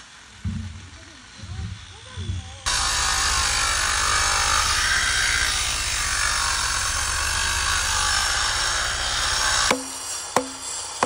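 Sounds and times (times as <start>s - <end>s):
angle grinder cutting stone: 2.7s - 11.0s.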